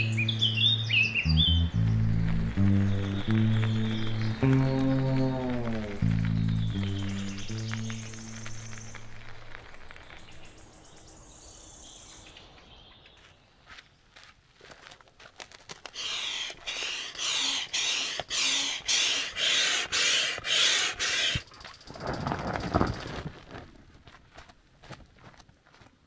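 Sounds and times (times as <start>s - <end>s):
hand air pump whooshing: 15.9s - 23.2s.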